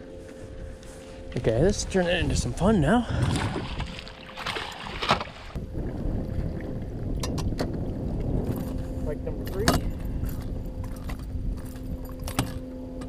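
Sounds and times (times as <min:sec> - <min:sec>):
lapping lake water: 0:00.0 - 0:13.0
wind rumbling on microphone: 0:00.0 - 0:13.0
fish splashing: 0:03.1 - 0:05.6.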